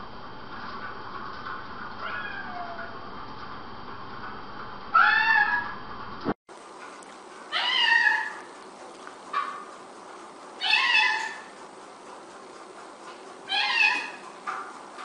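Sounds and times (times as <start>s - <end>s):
cat meowing: 2.0s - 3.0s, 5.0s - 5.6s, 7.5s - 8.4s, 10.6s - 11.4s, 13.5s - 14.2s.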